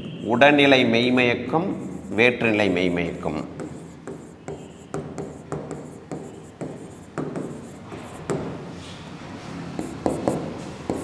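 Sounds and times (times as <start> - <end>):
faint stylus scratching: 1.7 - 8.3
stylus tapping on whiteboard: 3.4 - 8.6, 9.8 - 11.0.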